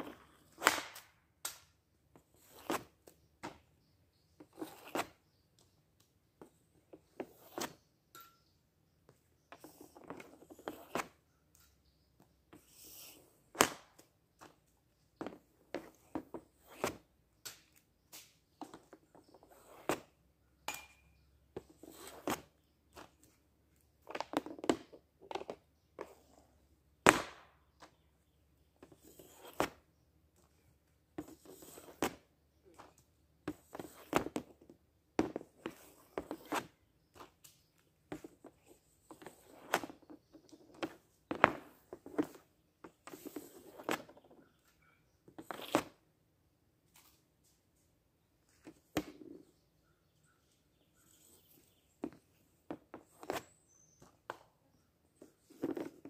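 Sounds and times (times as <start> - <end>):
pucks scraping and tapping: 0.0 - 46.1, 48.5 - 49.6, 50.8 - 56.0
hockey stick hitting puck: 27.0 - 27.6.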